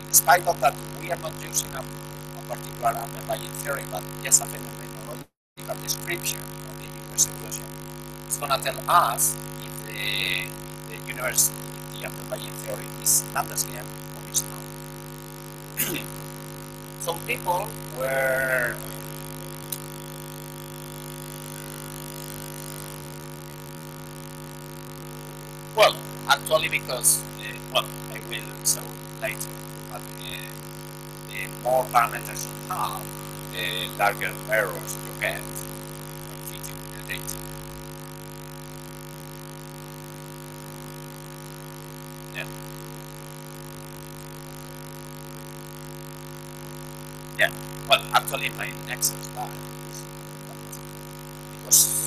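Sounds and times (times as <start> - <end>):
steady electrical hum: 0.0 - 52.0.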